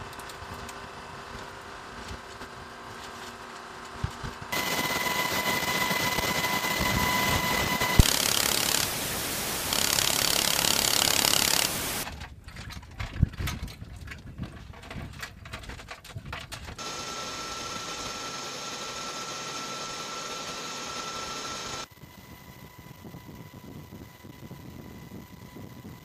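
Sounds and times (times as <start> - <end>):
steady hum with high whine: 0.0 - 12.1
helicopter wind and rotor noise: 3.9 - 12.2, 13.0 - 26.0
gear clicks and knocks: 9.7 - 16.8.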